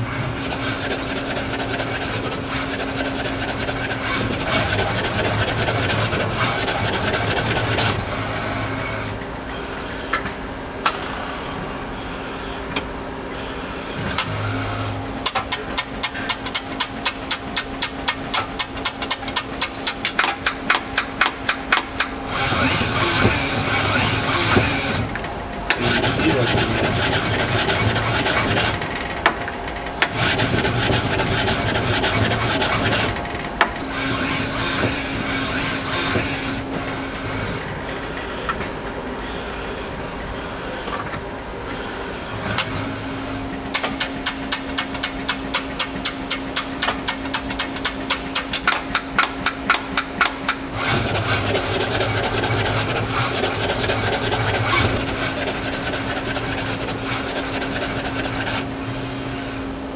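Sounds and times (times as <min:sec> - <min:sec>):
robot arm motors whining: 0:22.2 - 0:29.1, 0:30.1 - 0:38.6.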